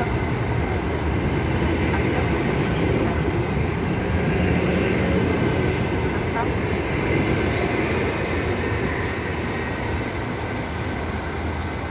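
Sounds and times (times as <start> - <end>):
train wheels running on rails: 0.0 - 11.9.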